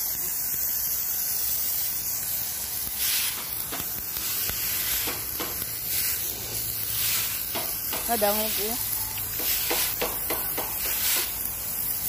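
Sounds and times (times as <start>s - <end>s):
pressure washer jet hissing: 0.0s - 12.0s
stiff broom sweeping water: 3.0s - 11.5s.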